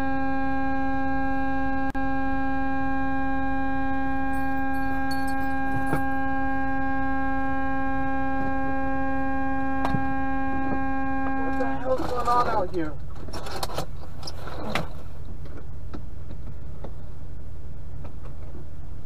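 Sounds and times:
truck air horn blast: 2.0s - 12.0s.

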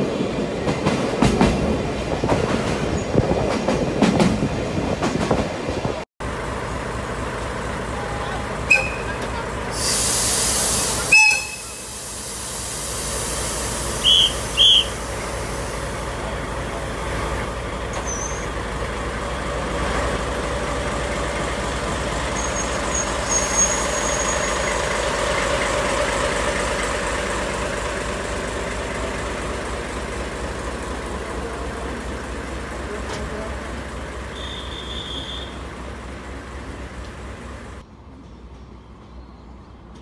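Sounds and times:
diesel locomotive engine: 0.0s - 40.0s
air hiss: 9.7s - 16.0s
short high horn toots: 11.0s - 11.8s.

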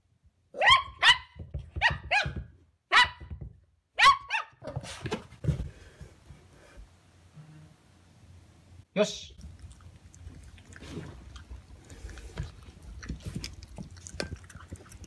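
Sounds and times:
dog barking sharply: 0.6s - 3.2s, 4.0s - 4.8s.

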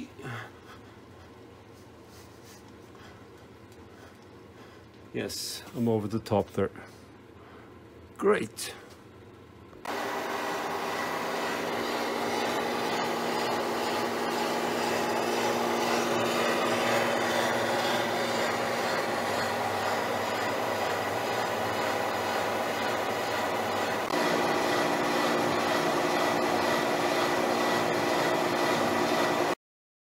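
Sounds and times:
milling machine hum: 9.1s - 29.6s.

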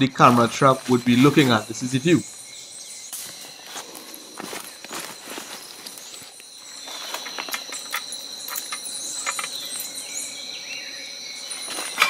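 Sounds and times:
rustles of dry leaf litter: 0.0s - 2.3s, 3.1s - 7.9s
insects trilling: 0.0s - 12.0s.

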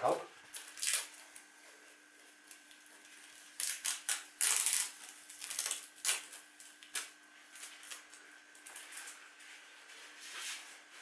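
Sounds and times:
tape being peeled off: 0.5s - 1.5s, 2.4s - 9.3s
tape crumpling: 0.5s - 1.5s, 3.5s - 9.2s.

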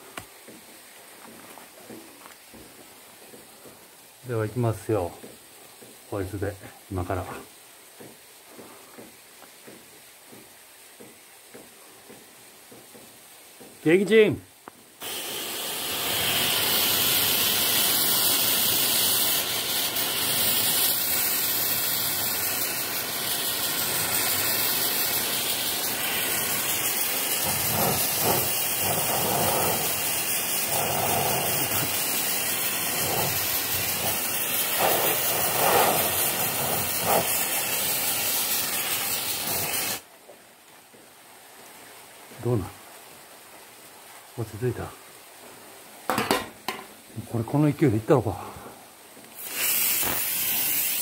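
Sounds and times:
aerosol can spraying: 15.0s - 40.0s, 49.3s - 51.0s.

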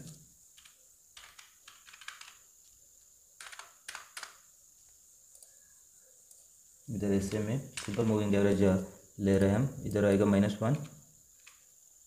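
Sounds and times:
typing on computer keyboard: 0.6s - 2.5s, 3.4s - 4.4s.

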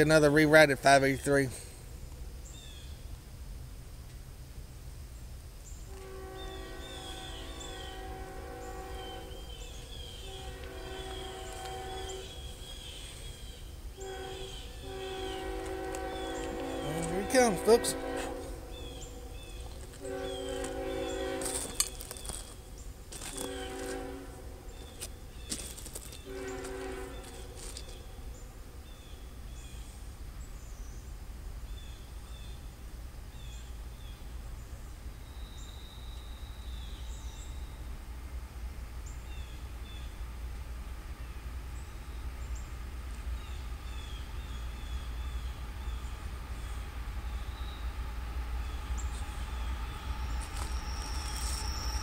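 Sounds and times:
low steady rumble: 0.0s - 52.0s
small birds chirping: 2.1s - 3.1s, 5.1s - 18.1s, 18.7s - 24.0s, 24.7s - 32.7s
distant train horn: 5.8s - 30.0s, 35.3s - 52.0s.

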